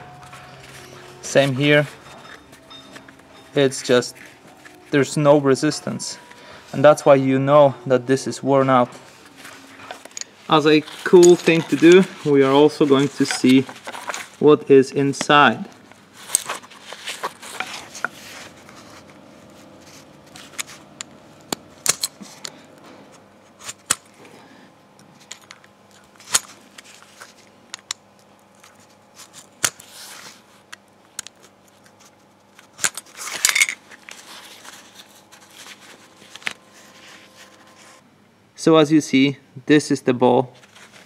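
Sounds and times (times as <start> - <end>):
metal scraping: 0.0 - 14.4.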